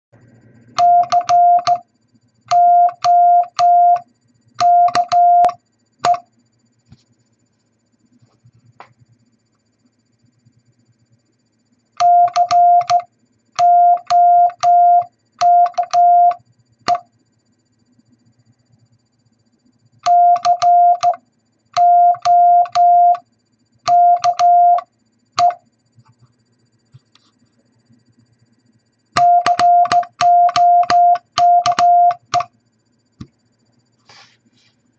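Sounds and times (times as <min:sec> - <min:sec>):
morse code beeps: 0:00.8 - 0:01.8, 0:02.5 - 0:04.0, 0:04.6 - 0:06.2, 0:12.0 - 0:17.0, 0:20.0 - 0:21.2, 0:21.8 - 0:23.2, 0:23.9 - 0:25.6, 0:29.2 - 0:32.5
telegraph key clicks: 0:00.8 - 0:01.8, 0:02.5 - 0:04.0, 0:04.6 - 0:06.2, 0:12.0 - 0:13.0, 0:20.0 - 0:21.2, 0:21.8 - 0:22.9, 0:23.9 - 0:24.5, 0:29.2 - 0:32.5.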